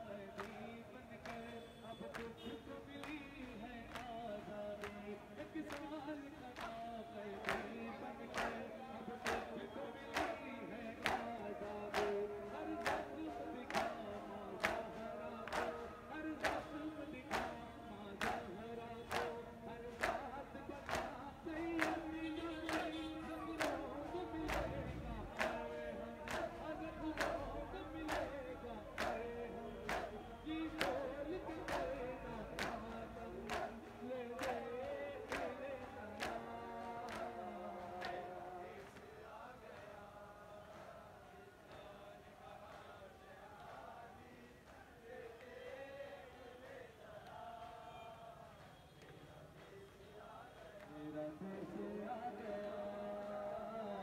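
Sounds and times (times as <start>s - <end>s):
men chanting in unison: 0.0s - 54.0s
hands slapping chests: 15.5s - 15.8s, 29.9s - 30.2s, 33.5s - 33.7s.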